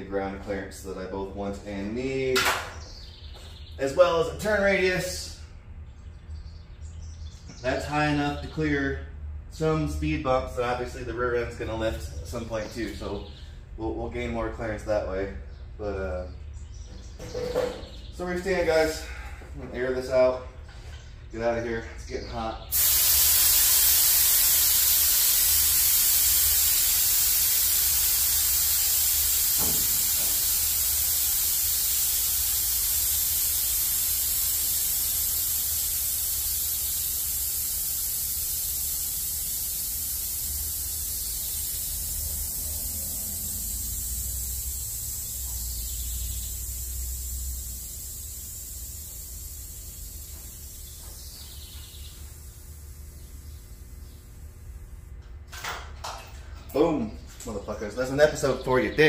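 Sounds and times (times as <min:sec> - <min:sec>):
pressurised air hissing: 0:22.7 - 0:55.1.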